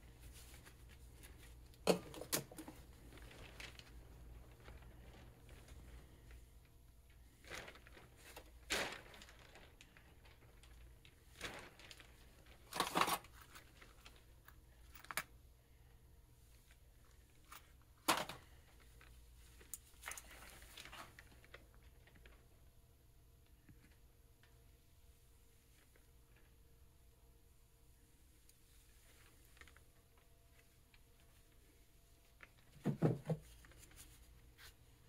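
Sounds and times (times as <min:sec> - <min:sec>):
gloved hands rustling and clicking: 0:16.4 - 0:22.7.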